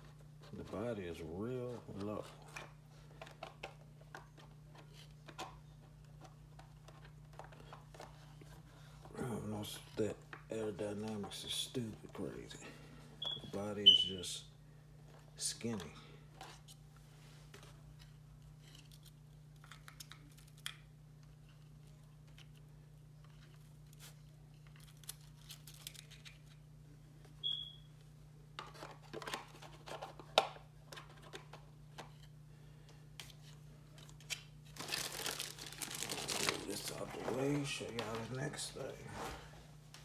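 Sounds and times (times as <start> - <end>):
faint low hum: 0.0 - 40.0
plastic packaging crinkling: 34.6 - 38.5.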